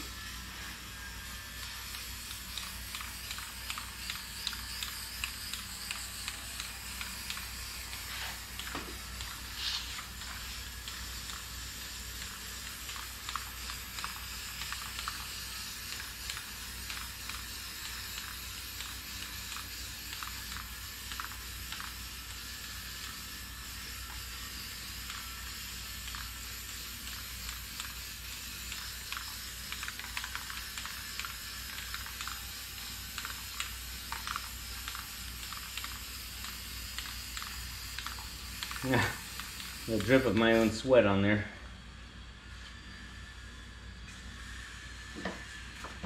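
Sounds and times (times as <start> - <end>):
aerosol can hissing: 1.6 - 40.8.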